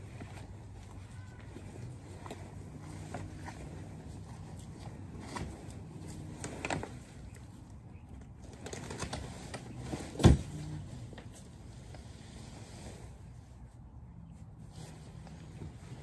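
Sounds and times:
fabric rustling and flapping: 8.3s - 13.7s, 14.6s - 16.0s.

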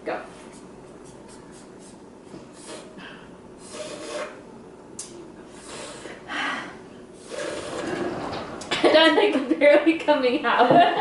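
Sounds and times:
drinking straws slurping: 2.5s - 4.4s, 5.5s - 6.3s, 7.2s - 8.4s.

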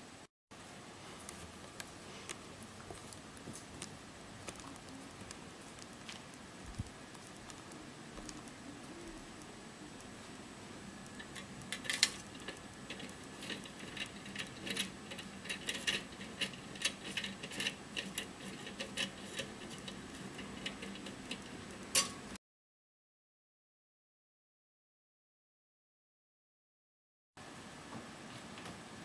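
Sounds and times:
low steady hum: 0.0s - 22.4s
light clicks and taps: 11.0s - 22.2s.

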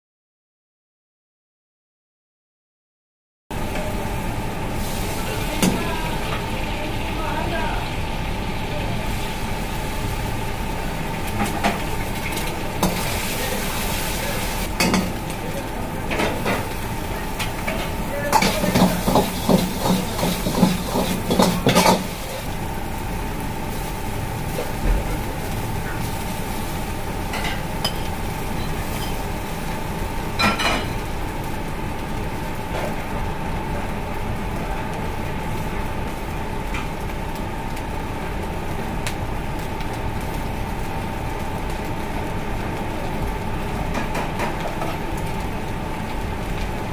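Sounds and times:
gas burner roar: 3.5s - 46.9s
food sizzling in wok: 3.6s - 46.9s
metal ladle clanging and scraping wok: 17.7s - 22.4s.

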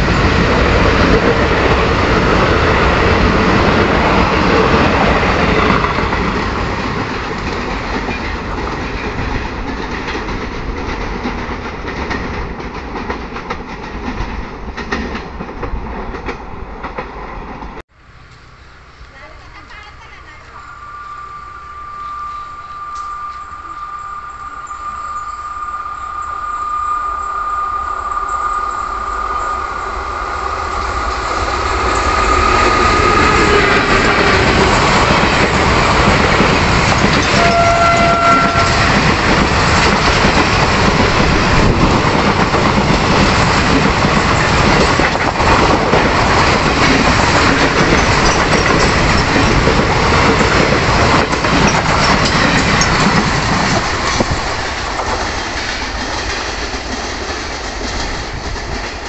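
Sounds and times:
train wheels clickety-clack: 0.0s - 17.8s, 29.9s - 59.0s
train rushing past: 0.0s - 59.0s
train horn: 37.2s - 39.2s.

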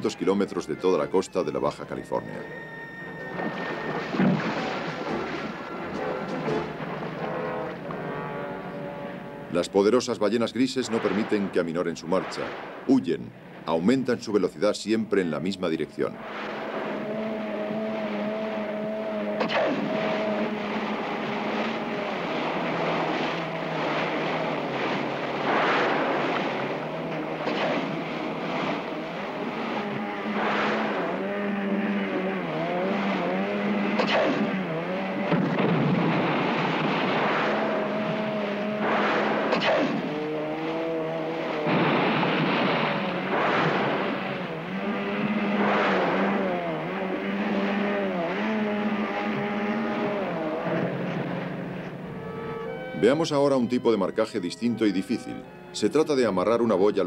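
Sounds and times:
water splashing: 0.0s - 8.8s, 9.5s - 54.0s
boat engine running: 0.0s - 57.0s.

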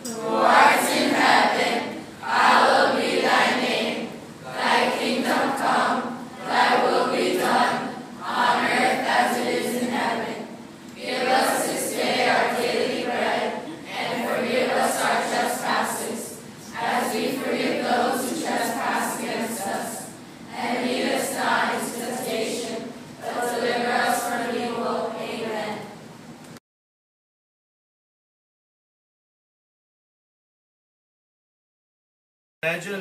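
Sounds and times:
students singing in unison: 0.0s - 26.0s.

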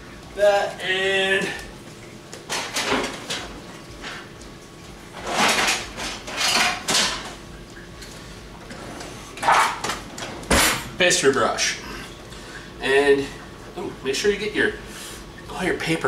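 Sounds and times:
dishes clattering: 2.5s - 4.2s, 5.2s - 7.4s.

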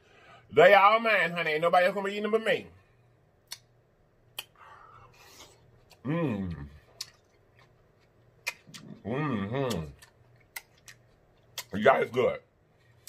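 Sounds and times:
person humming: 6.0s - 6.8s, 8.8s - 10.0s.

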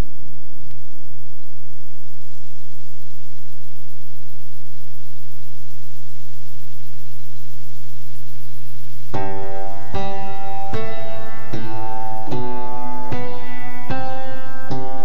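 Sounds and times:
constant hiss: 0.0s - 15.0s
electrical hum: 0.0s - 15.0s.

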